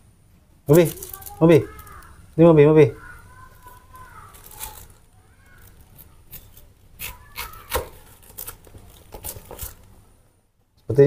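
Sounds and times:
knife cutting into watermelon: 6.3s - 9.8s.

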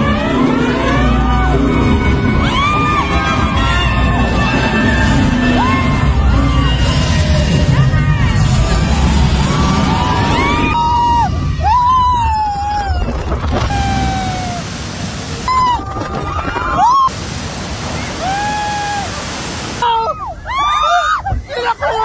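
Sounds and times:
riders shrieking and yelling: 0.0s - 17.2s, 17.8s - 22.0s
low rumble: 1.0s - 18.3s
rushing splashing water: 13.3s - 19.9s.

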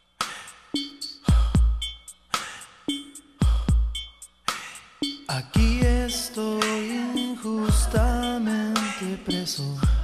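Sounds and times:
deep kick drum hits: 5.6s - 6.1s.

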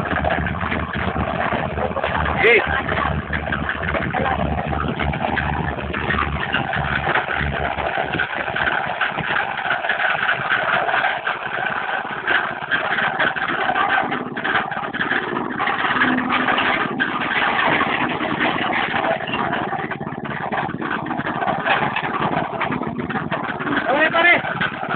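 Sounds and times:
concrete mixer motor droning: 0.0s - 24.9s
mixer drum rattling with concrete: 0.0s - 24.9s.

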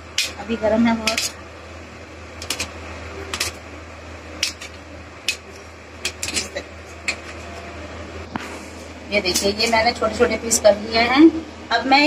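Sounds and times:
knife clicking on metal plate: 0.2s - 0.4s, 1.0s - 1.4s, 2.4s - 2.7s, 4.4s - 6.5s.

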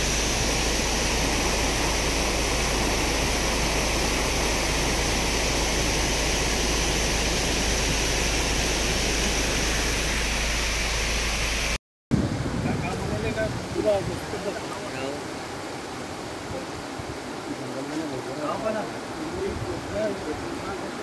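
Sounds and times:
floodwater rushing: 0.0s - 21.0s.

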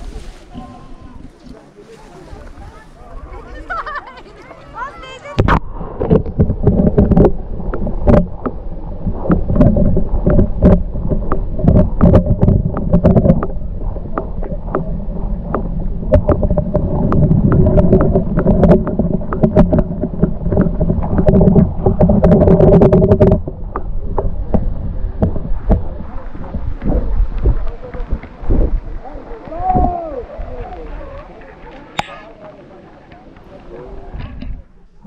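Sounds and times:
underwater water sloshing: 0.0s - 35.0s
water knocking against camera: 5.4s - 30.0s.

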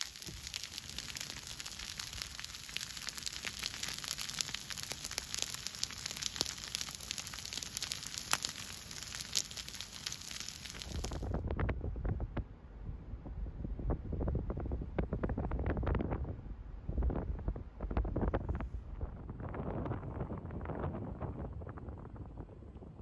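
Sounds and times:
fire crackling and popping: 0.0s - 12.2s
low fire rumble: 0.0s - 23.0s.

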